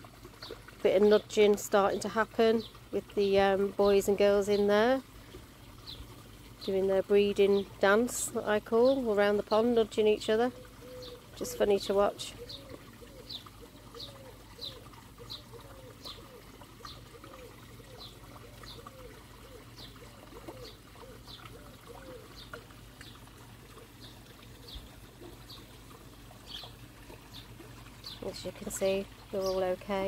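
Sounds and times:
trickling water: 0.0 - 30.0
birds chirping: 5.8 - 25.7, 26.4 - 30.0.

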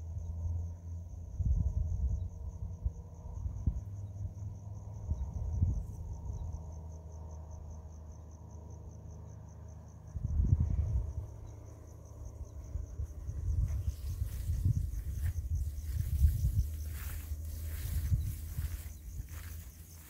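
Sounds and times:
crickets chirping: 0.0 - 20.0
dull low thumps: 12.5 - 20.0.

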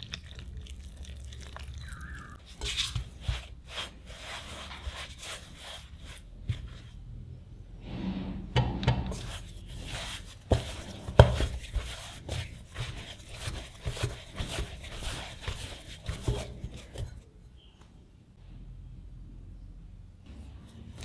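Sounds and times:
dough squishing while kneaded: 0.0 - 7.3, 9.0 - 17.8.

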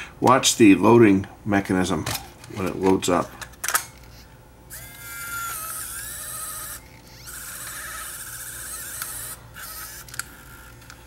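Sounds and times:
camcorder motor and gears whining: 3.9 - 11.0.

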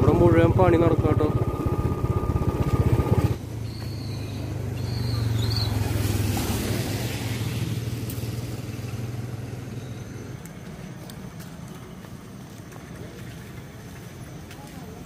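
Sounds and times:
vehicle engine running: 0.0 - 6.0
tyre and road noise: 0.0 - 15.0.

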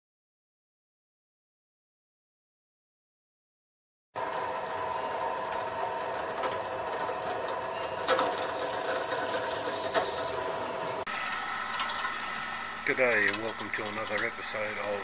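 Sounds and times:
drill bit squealing on metal: 8.2 - 11.0.

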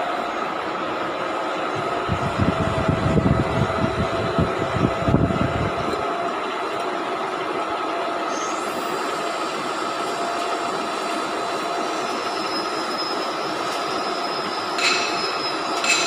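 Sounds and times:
workshop machinery drone: 0.0 - 16.0
steel clang: 14.8 - 16.0.

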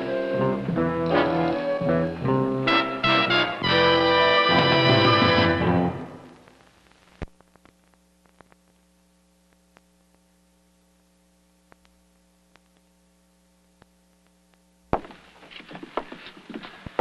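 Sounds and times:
faint electrical hum: 5.9 - 17.0
clicks and pops: 6.4 - 8.8.

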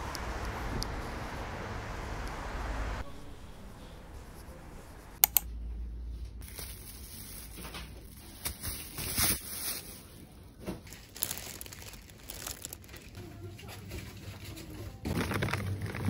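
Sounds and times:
sharp click: 5.2 - 5.5
crinkling and rustling handling: 6.2 - 16.0.

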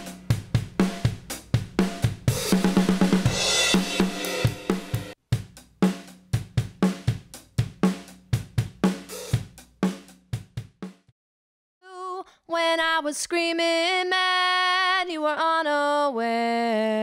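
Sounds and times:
drum kit playing: 0.0 - 11.1.

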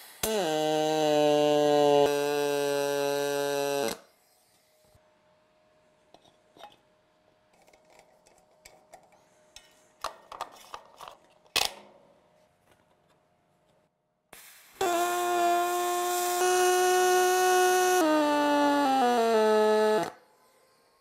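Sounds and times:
welder buzzing: 0.0 - 4.1, 14.8 - 20.2.

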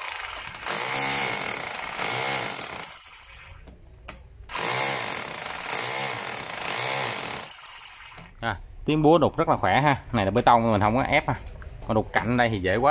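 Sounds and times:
rotary hammer chiselling concrete: 0.0 - 3.6, 4.5 - 8.3.

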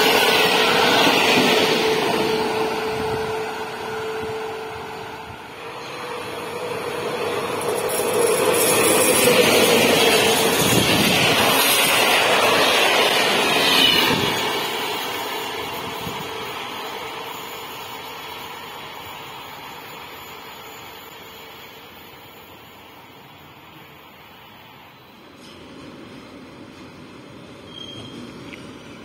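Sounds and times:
train passing at speed: 0.0 - 29.0.

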